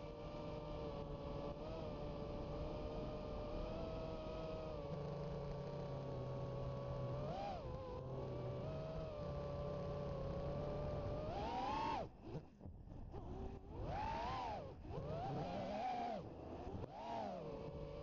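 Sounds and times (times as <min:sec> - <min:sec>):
quadcopter motors whining: 0:00.0 - 0:12.5, 0:13.1 - 0:18.0.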